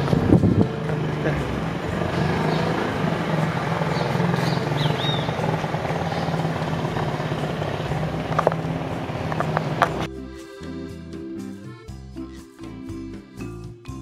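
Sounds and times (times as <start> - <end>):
traffic: 0.0 - 10.1
car engine rumble: 0.0 - 10.4
high bird chirps: 1.9 - 8.2.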